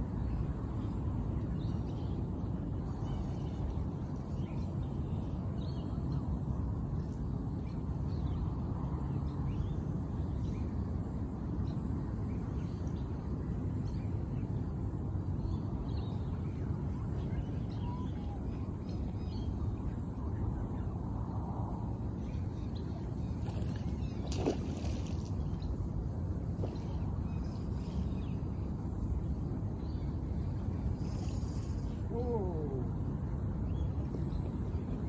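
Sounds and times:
low outdoor rumble: 0.0 - 35.0
faint bird chirps: 15.4 - 21.0, 29.8 - 35.0.

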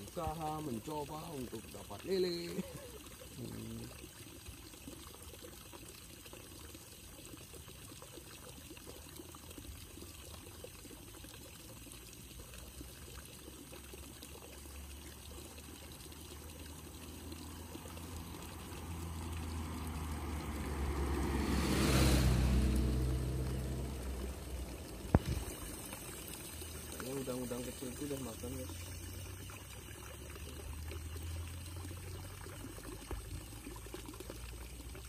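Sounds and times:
trickle of flowing water: 0.0 - 35.0
motorbike engine passing: 17.6 - 25.4.

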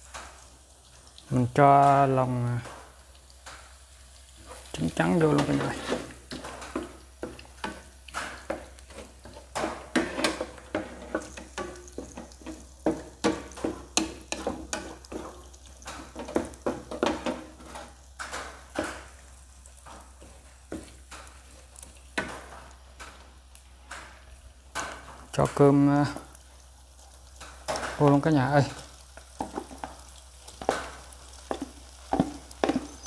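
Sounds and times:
eggs sizzling in hot oil: 0.0 - 33.0
wooden spatula scraping pan: 4.3 - 19.2, 19.8 - 22.8, 28.7 - 33.0.

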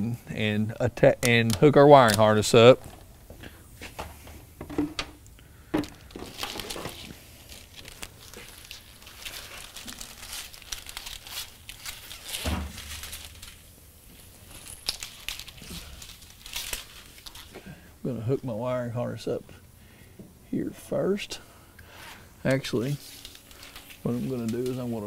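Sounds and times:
rustling and crinkling: 1.3 - 17.7, 22.7 - 25.0.

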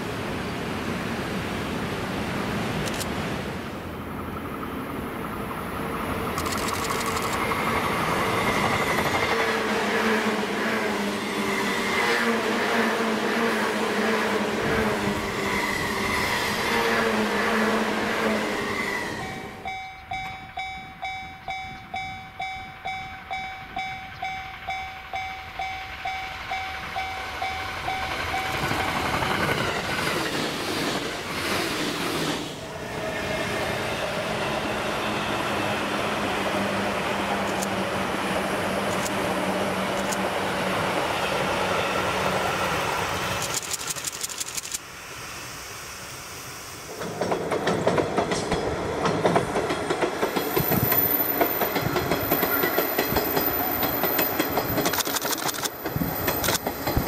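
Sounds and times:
train rumbling past: 3.6 - 43.6, 45.0 - 57.0
level-crossing warning bell: 19.2 - 29.2.

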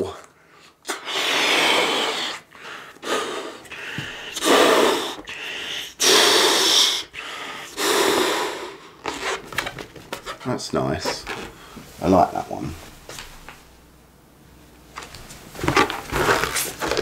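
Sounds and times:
short breaths: 0.2 - 9.1
man blowing up balloon: 0.6 - 9.6, 16.1 - 17.0.

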